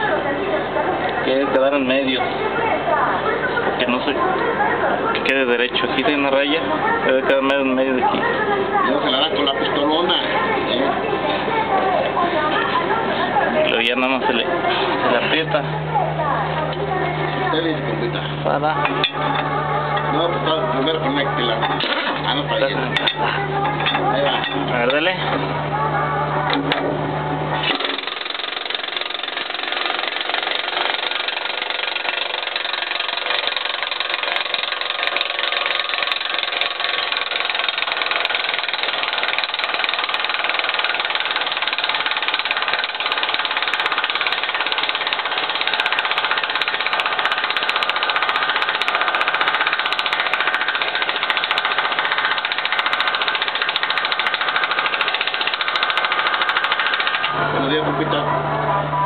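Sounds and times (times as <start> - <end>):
impact wrench hammering: 21.6 - 25.0, 27.6 - 57.4.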